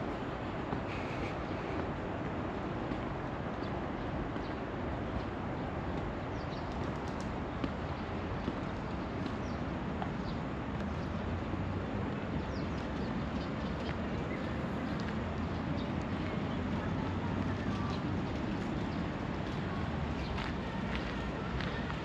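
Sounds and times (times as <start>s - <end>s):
distant traffic hum: 0.0s - 22.0s
footsteps: 17.5s - 22.0s.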